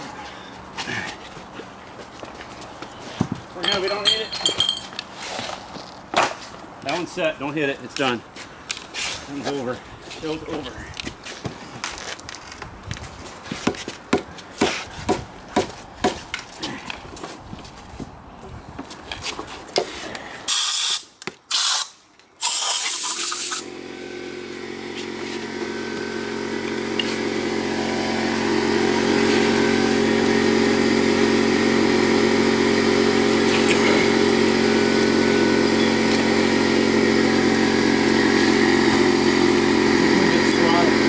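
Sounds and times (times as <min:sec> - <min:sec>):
compressed air hissing: 0:20.4 - 0:23.7
machine motor humming: 0:23.6 - 0:41.0.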